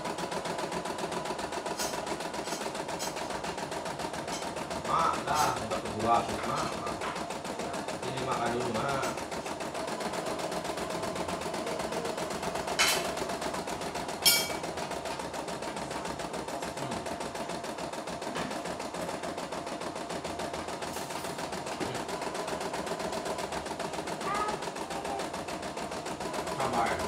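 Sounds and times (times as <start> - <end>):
embroidery machine stitching: 0.0 - 27.0.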